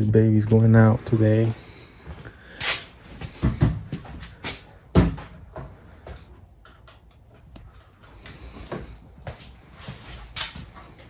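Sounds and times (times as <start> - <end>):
dull knocks and thumps: 4.9 - 6.2.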